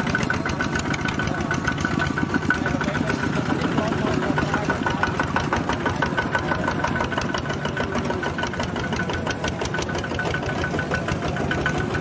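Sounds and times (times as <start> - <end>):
walking tractor diesel engines knocking: 0.0 - 12.0.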